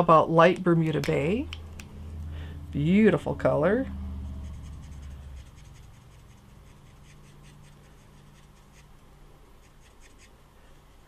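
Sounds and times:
marker scratching on paper: 4.3 - 8.9, 9.6 - 10.3.

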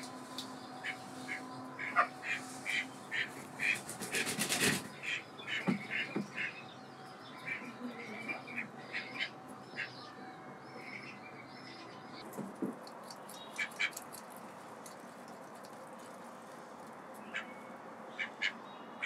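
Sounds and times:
ducks calling: 0.0 - 11.9, 13.3 - 14.6, 17.2 - 19.0.

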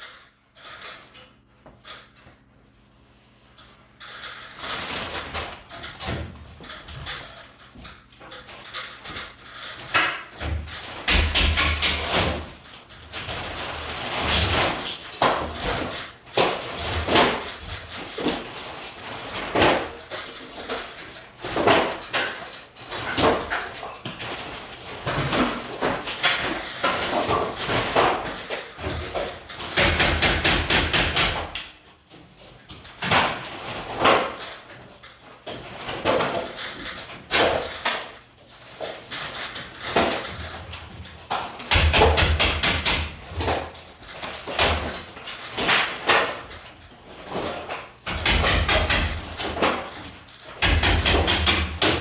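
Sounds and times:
hammering on wooden frame: 9.8 - 12.5, 25.2 - 31.7, 41.3 - 45.0, 48.0 - 49.9, 50.6 - 52.0.

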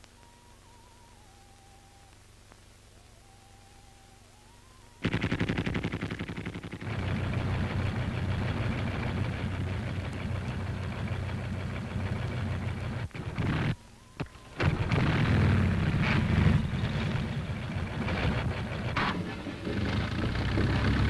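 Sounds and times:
tank engines rumbling: 5.0 - 21.0.

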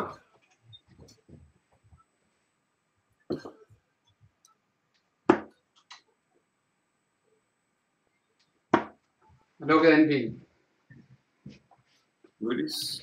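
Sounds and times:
darts hitting a dartboard: 5.3 - 5.6, 8.7 - 9.0.

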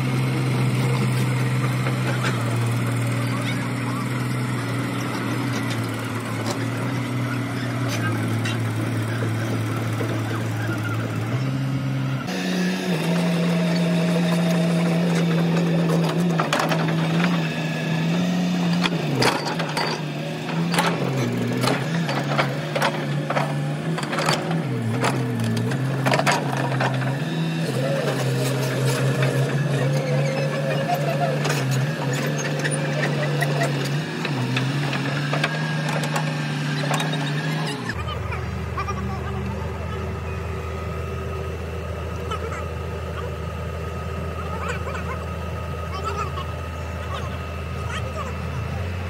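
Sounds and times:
excavator diesel engine running: 0.0 - 49.0.

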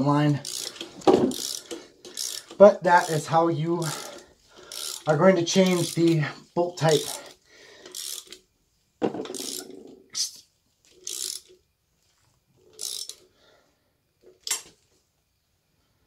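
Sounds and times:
ratchet wrench clicking: 0.0 - 8.5, 9.3 - 10.0, 10.9 - 11.6, 12.7 - 13.3.

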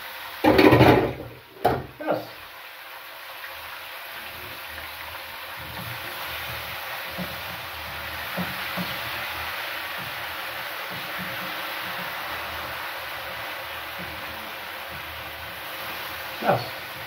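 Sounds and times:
food sizzling in a frying pan: 0.0 - 17.0
wooden spoon knocking pan: 0.4 - 2.0, 5.6 - 12.4.

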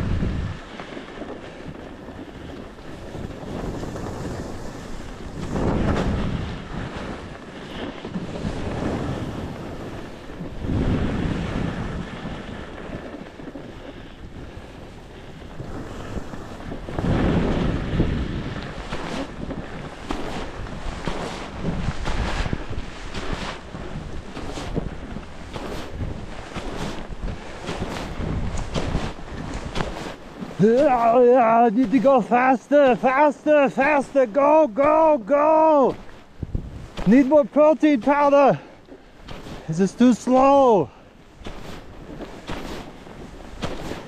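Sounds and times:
skis sliding on snow: 0.0 - 44.0
wind buffeting microphone: 0.0 - 44.0.

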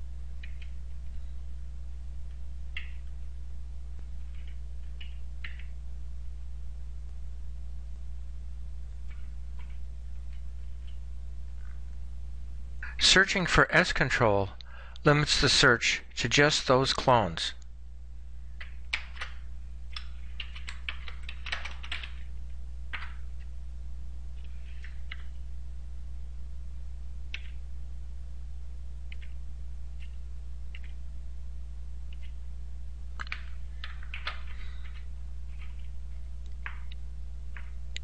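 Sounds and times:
steady low hum: 0.0 - 38.0
computer keyboard keystrokes: 0.4 - 1.0, 2.3 - 3.1, 4.3 - 5.8, 18.6 - 22.3, 22.9 - 23.5, 24.4 - 25.4, 27.3 - 27.6, 29.1 - 29.4, 30.0 - 31.0, 32.1 - 32.4, 33.2 - 38.0.

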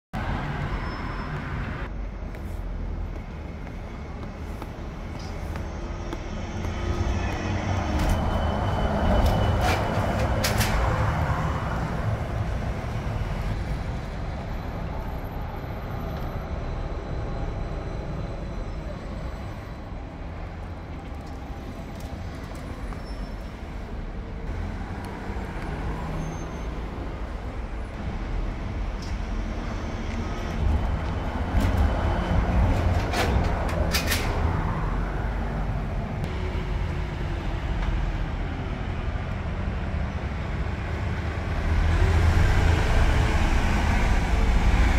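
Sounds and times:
city street traffic: 0.1 - 44.9
trolleybus passing: 0.2 - 44.9.

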